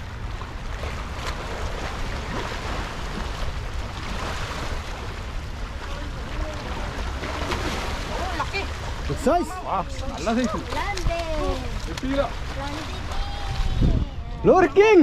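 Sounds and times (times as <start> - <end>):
sea water splashing on rocks: 0.3 - 13.9
wind buffeting microphone: 9.8 - 15.0.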